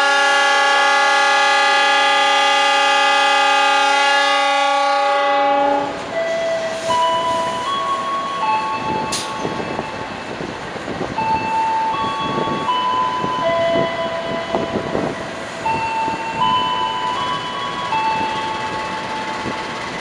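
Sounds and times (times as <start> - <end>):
train rumbling: 0.0 - 20.0
electronic chime melody: 11.2 - 19.7.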